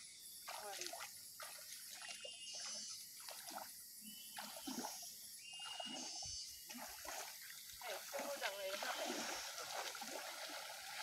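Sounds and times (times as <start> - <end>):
wading through muddy water: 0.0 - 11.0.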